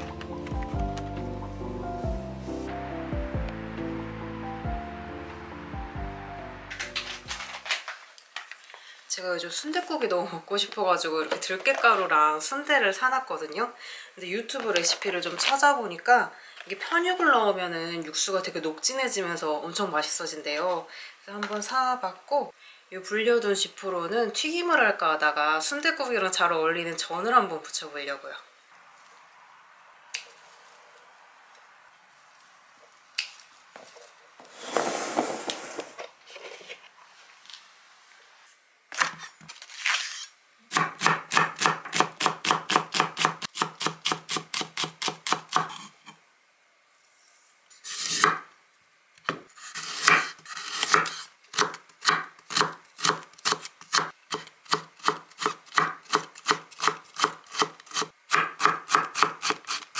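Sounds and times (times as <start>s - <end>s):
knife chopping on wooden board: 50.0s - 59.6s.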